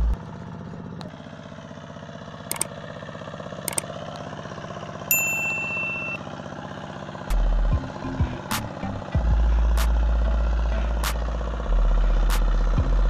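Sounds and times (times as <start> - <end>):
tractor engine chugging: 0.0 - 13.0
electronic ding chime: 5.1 - 6.2.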